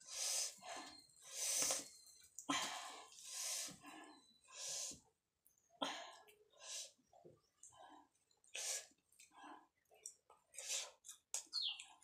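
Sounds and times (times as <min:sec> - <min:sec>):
person breathing: 0:02.5 - 0:05.0
person chewing: 0:09.9 - 0:12.0.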